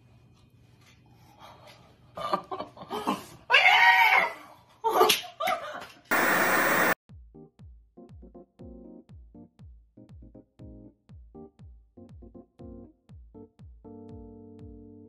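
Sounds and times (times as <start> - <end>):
television static noise: 6.1 - 7.0.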